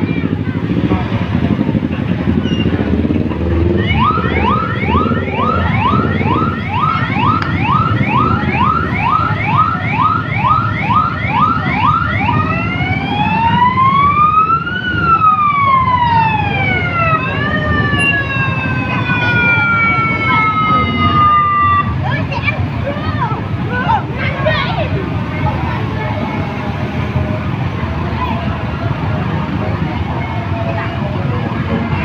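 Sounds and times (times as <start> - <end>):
motorcycle engines running: 0.0 - 32.0
electronic siren yelping and wailing: 3.5 - 22.0.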